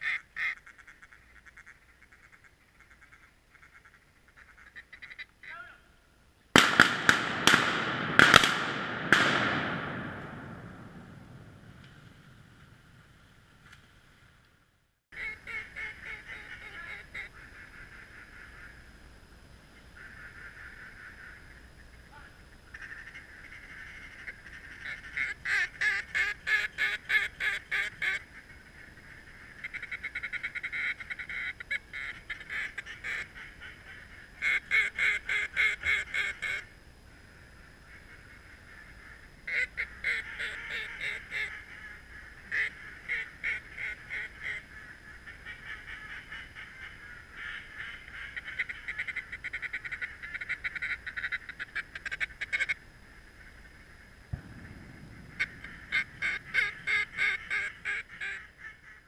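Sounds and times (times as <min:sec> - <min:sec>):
duck quacking and chatter: 0:00.0 - 0:05.8, 0:15.2 - 0:18.8, 0:22.1 - 0:36.7, 0:37.9 - 0:52.8, 0:55.4 - 0:59.0
low rushing sound: 0:54.3 - 0:56.9.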